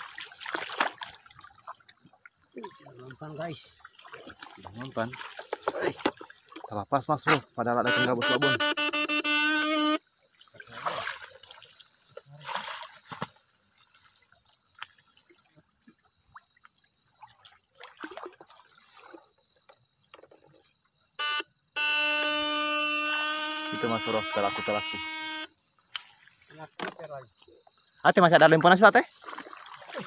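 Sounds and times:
wading through shallow water: 0.0s - 8.2s, 10.0s - 20.7s, 25.9s - 30.0s
electric buzzing tone: 7.8s - 10.0s, 21.2s - 25.6s.

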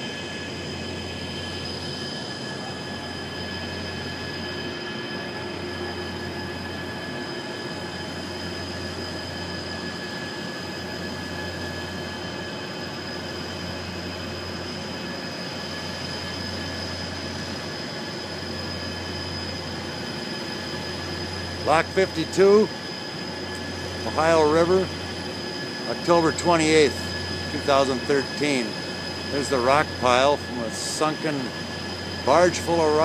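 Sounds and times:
boat engine droning: 0.0s - 33.0s
steady high tones: 18.4s - 33.0s.

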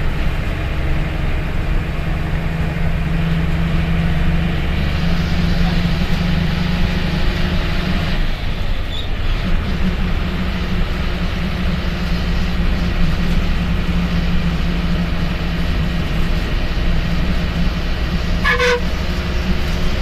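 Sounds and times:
bus diesel engine droning: 0.0s - 20.0s
short horn toot: 18.4s - 19.0s.

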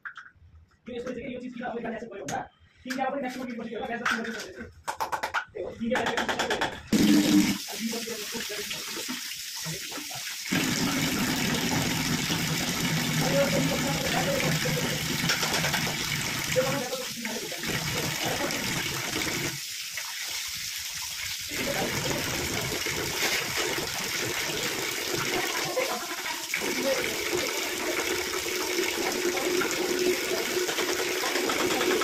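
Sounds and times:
water running: 6.9s - 32.0s.

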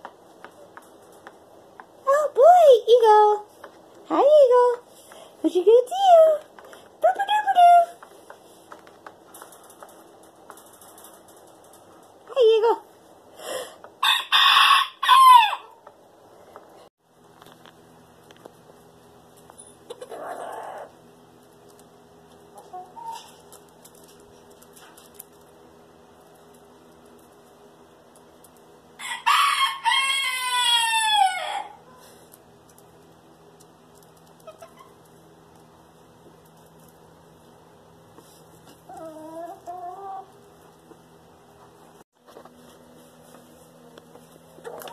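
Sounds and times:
rooster crowing: 14.0s - 15.8s, 29.0s - 31.8s.

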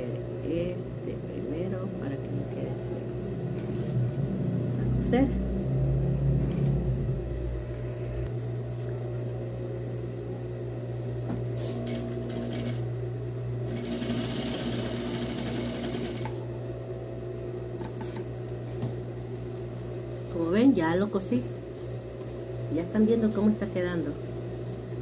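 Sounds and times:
electric sewing machine running: 11.8s - 12.9s, 13.6s - 16.4s.

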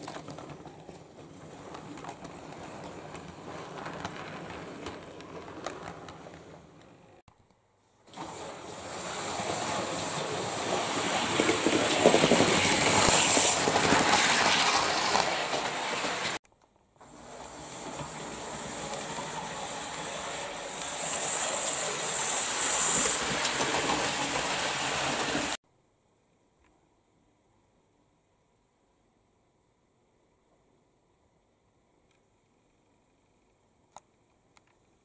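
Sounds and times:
wheels rattling over rails: 0.0s - 7.0s, 8.1s - 16.4s, 17.0s - 25.6s
model train motor whine: 17.1s - 25.6s.

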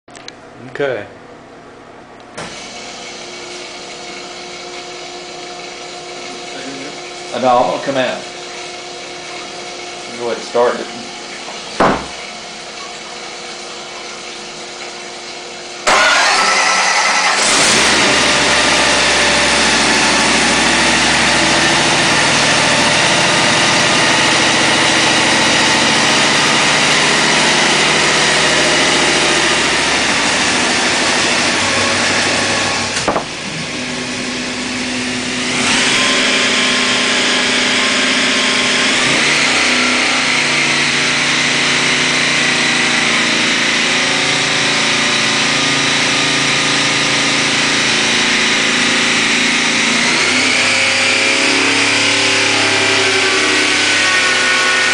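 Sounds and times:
supercharged engine running loud: 15.8s - 54.9s.

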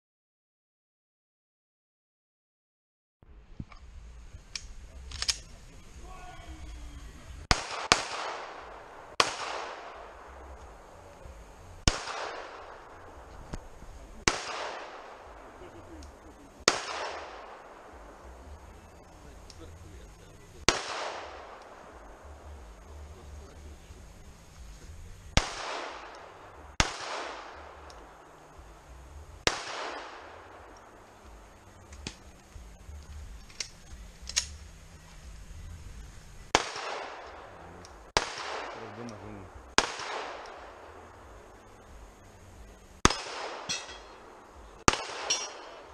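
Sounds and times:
faint sharp cracks: 4.5s - 5.6s, 20.7s - 22.1s, 25.3s - 28.6s, 29.4s - 34.6s, 36.5s - 41.6s
pistol shots with echo: 7.5s - 10.9s, 11.8s - 13.3s, 14.2s - 18.3s, 20.7s - 22.5s, 25.3s - 28.6s, 29.4s - 31.0s, 36.5s - 41.5s, 43.0s - 45.9s.

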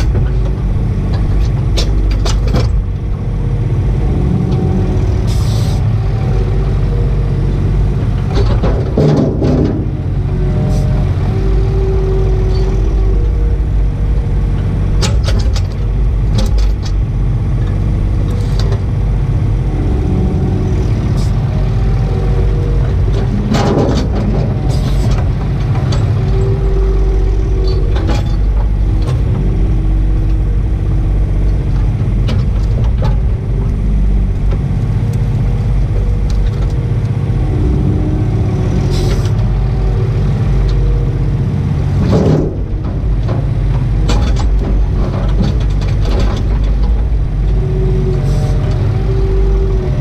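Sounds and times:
diesel engine running: 0.0s - 50.0s
hydraulic whine: 0.0s - 50.0s
knocks and clunks of logs: 8.0s - 11.7s, 20.7s - 29.7s, 41.6s - 47.6s.

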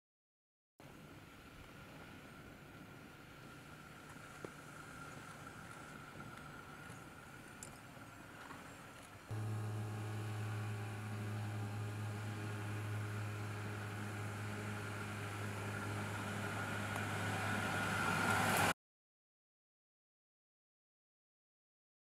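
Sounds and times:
truck engine running: 9.3s - 18.7s.

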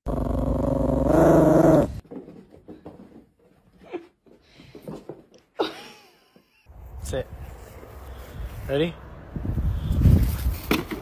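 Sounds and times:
dog growling: 0.1s - 2.0s.

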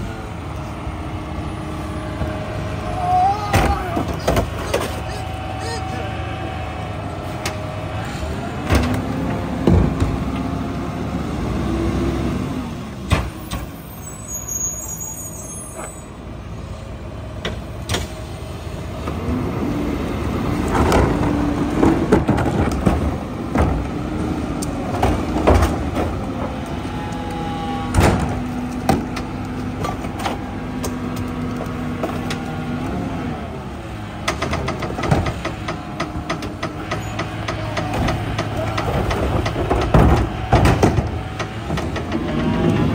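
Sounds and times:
garbage truck engine drone: 0.0s - 42.9s
carts banging against hopper: 3.4s - 5.8s, 20.6s - 24.0s, 24.7s - 31.2s, 34.2s - 42.9s
hydraulic packer whining: 17.4s - 42.9s.

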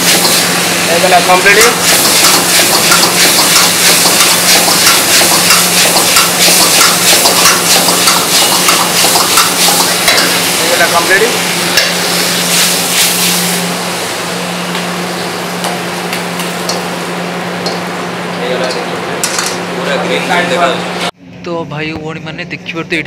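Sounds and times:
ladle scraping and knocking wok: 0.0s - 0.8s, 1.4s - 10.8s
vegetables sizzling in wok: 0.0s - 20.4s.

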